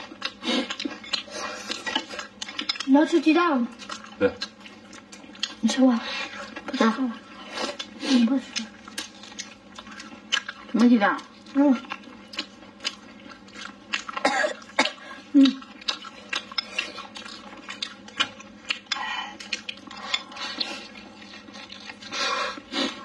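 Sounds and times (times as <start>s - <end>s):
person chewing food: 0.0s - 23.0s.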